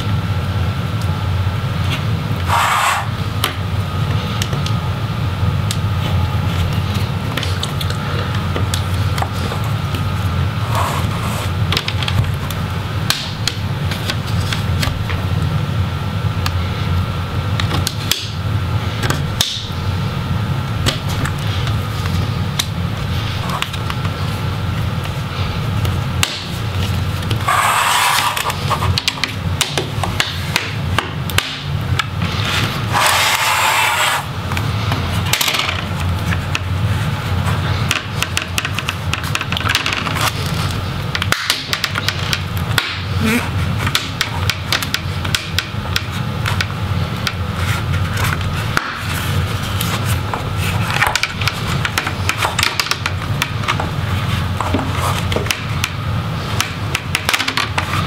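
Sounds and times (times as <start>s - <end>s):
steady low hum: 0.0s - 58.0s
plastic rubbing scrape: 2.4s - 3.2s, 10.6s - 11.6s, 26.8s - 29.0s, 32.2s - 35.2s.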